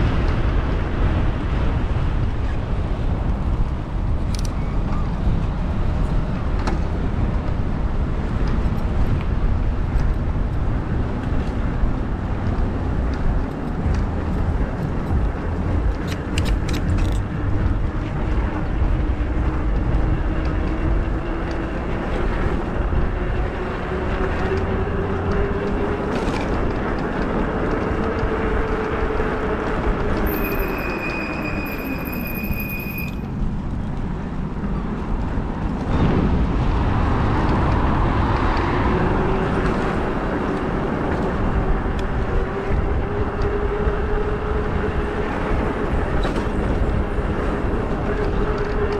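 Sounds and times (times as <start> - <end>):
wind rush on microphone: 0.0 - 48.9
high brake squeal: 30.2 - 33.4.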